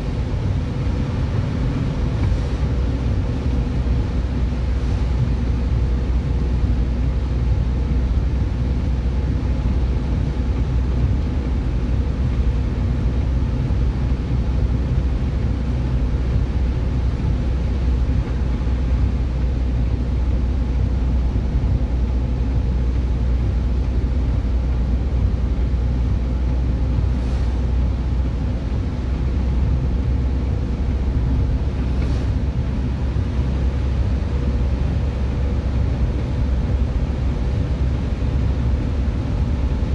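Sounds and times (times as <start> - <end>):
car engine rumble from cabin: 0.0 - 39.9
tyres hissing on wet road: 26.8 - 39.9.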